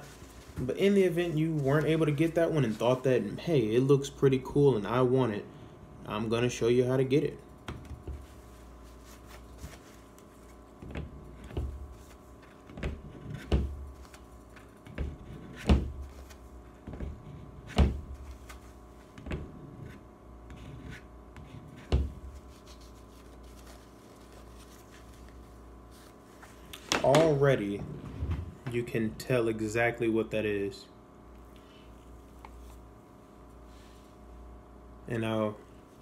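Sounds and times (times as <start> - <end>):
paper towel handling: 0.0 - 3.2, 8.0 - 12.8, 22.0 - 27.4
faint steady hum: 0.0 - 36.0.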